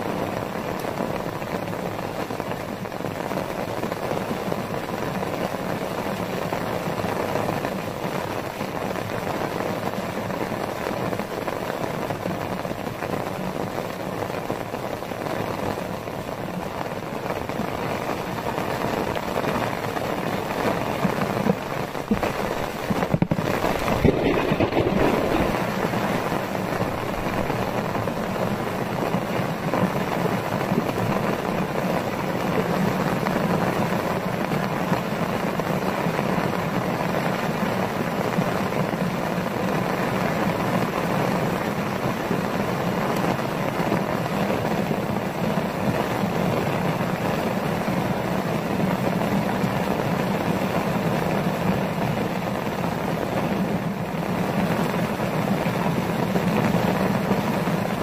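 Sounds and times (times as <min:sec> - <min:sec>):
heavy rain pouring: 0:00.0 - 0:58.0
loud thumps: 0:22.1 - 0:26.3.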